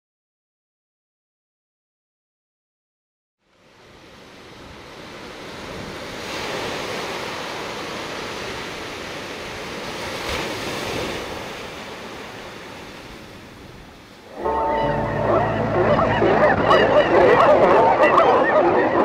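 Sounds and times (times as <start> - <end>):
ocean waves breaking: 3.5 - 19.0.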